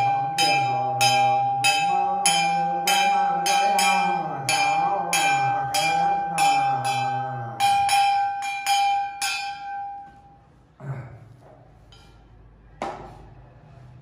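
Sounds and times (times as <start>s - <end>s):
small bell ringing: 0.0s - 10.4s.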